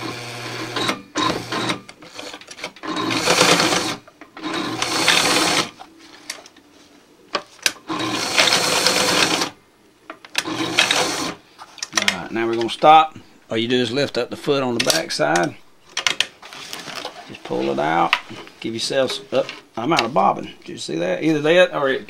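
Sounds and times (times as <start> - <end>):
sewing machine stitching: 0.0 - 5.7, 7.9 - 9.5, 10.4 - 11.4.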